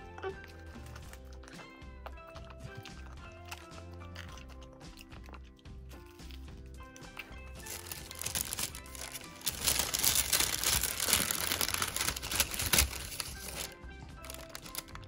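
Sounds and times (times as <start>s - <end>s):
light background music: 0.0s - 15.0s
paper bag crinkling: 7.6s - 15.0s.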